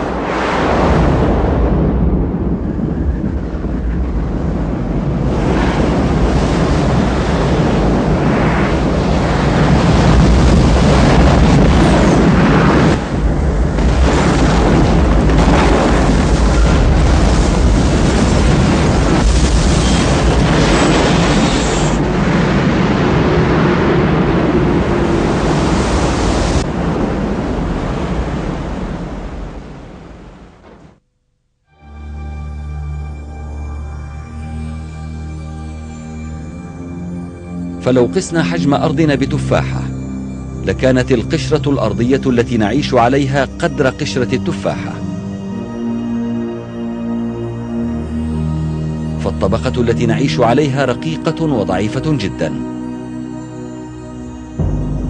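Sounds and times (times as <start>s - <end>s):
churning water rush: 0.0s - 30.4s
deep rumble: 0.0s - 31.0s, 54.4s - 55.0s.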